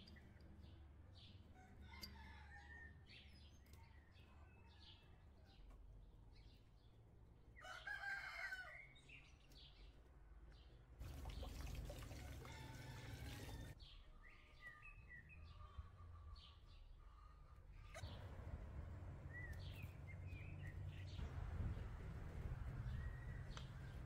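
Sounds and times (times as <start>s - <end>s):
rooster crowing: 7.6s - 8.8s, 12.2s - 13.8s
small birds chirping: 19.2s - 22.0s.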